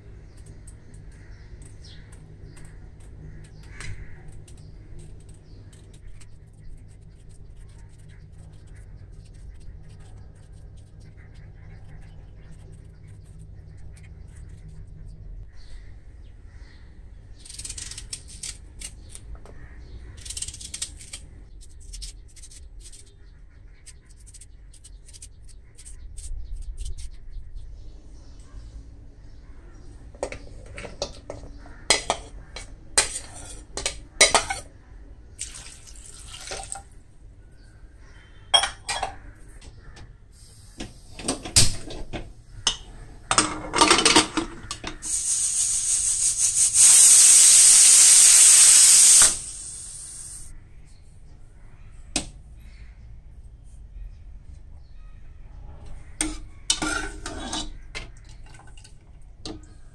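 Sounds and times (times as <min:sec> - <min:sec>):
metal spoon scraping a plate: 0:30.1 - 0:34.7, 0:56.1 - 0:58.7
knife cutting on a plate: 0:30.2 - 0:34.7
pressure cooker steam whistle: 0:45.0 - 0:50.4.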